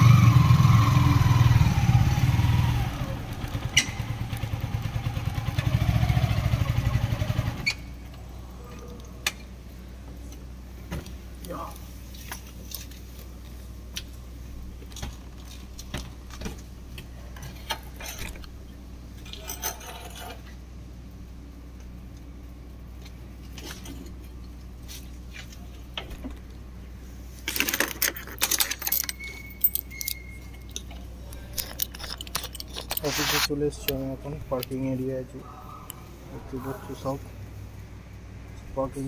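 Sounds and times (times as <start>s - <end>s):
clattering and jangling: 19.2s - 20.5s, 27.4s - 33.2s
handling clicks and knocks: 27.4s - 35.0s.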